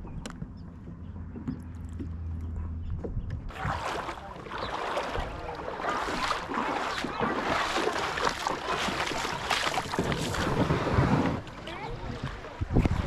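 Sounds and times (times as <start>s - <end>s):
wind buffeting microphone: 2.8s - 13.0s
faint voices: 3.5s - 10.6s, 11.5s - 13.0s
waves lapping on pebbles: 3.5s - 13.0s.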